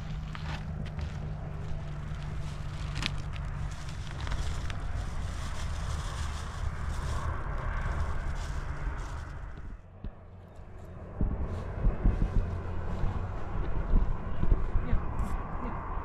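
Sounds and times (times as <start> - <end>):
wind rumbling on microphone: 0.0 - 16.0
plastic bag crinkling: 1.1 - 9.7.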